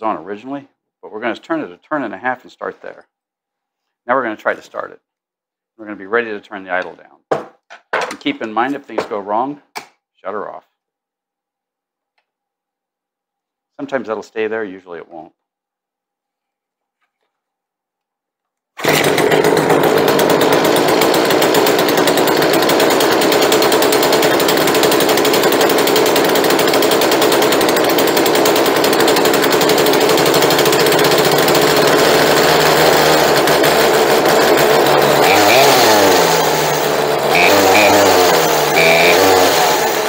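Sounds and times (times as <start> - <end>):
chainsaw engine idling fast: 18.8 - 40.0.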